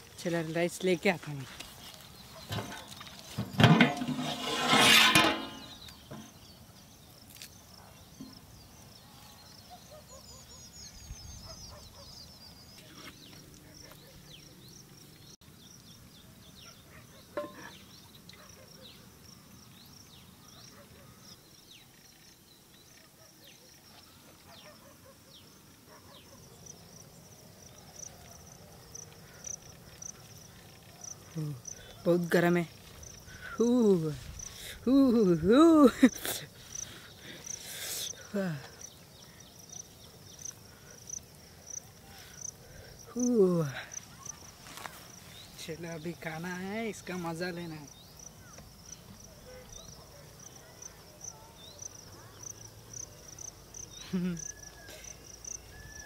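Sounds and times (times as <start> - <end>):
small birds chirping: 0.0 - 3.5, 5.6 - 56.0
metal lid scraping off rim: 2.5 - 6.3
metal lid clanking on pot: 3.6 - 6.3, 17.4 - 17.7.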